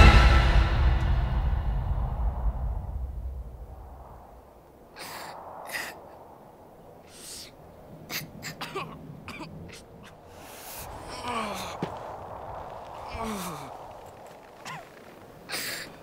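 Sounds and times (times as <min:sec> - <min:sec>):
child coughing and gasping: 0:08.1 - 0:10.2, 0:15.5 - 0:16.0.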